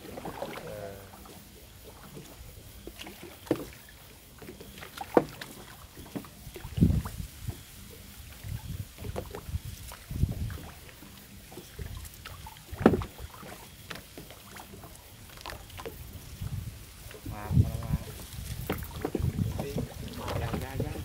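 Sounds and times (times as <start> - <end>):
dry grass rustling: 5.4 - 21.0
low thumps and knocks: 12.7 - 13.2, 15.8 - 21.0.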